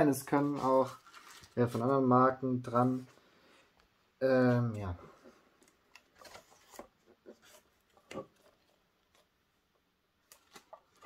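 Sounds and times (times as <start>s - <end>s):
plastic packaging clicks and rustles: 0.4s - 2.0s, 10.2s - 11.0s.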